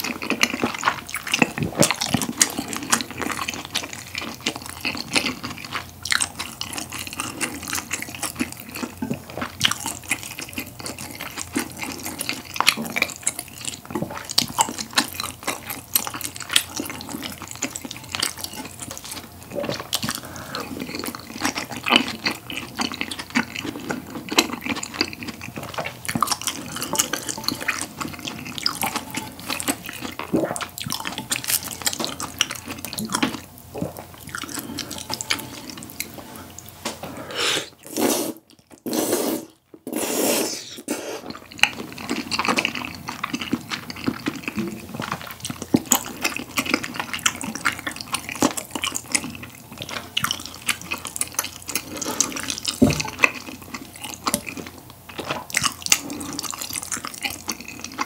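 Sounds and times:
wet chewing: 0.0s - 36.7s, 40.7s - 58.0s
loud slurps: 37.3s - 41.4s.

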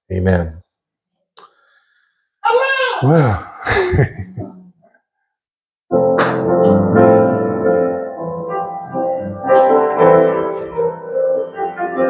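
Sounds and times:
piano music: 5.9s - 12.0s.

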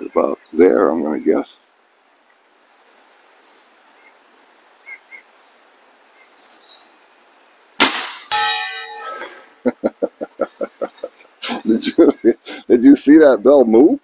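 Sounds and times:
air rifle crack: 7.8s - 9.4s
metal bell target clanging: 8.1s - 9.5s.

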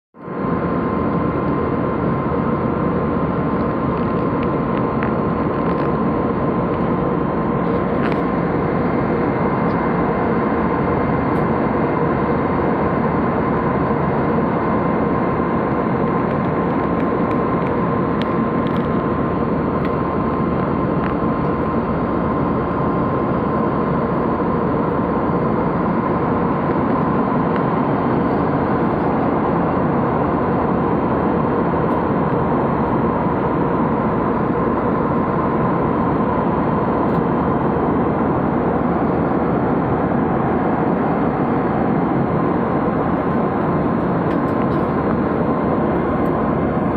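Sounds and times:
jet engines and airflow roar: 0.1s - 46.9s
thin steady whine: 0.2s - 46.9s.

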